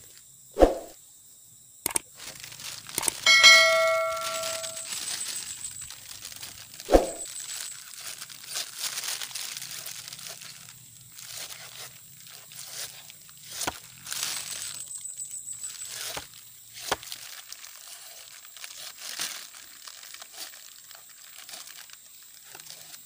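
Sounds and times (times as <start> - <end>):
rustling and scraping: 2.2 - 14.9, 15.6 - 23.0
metallic clang: 3.3 - 4.9.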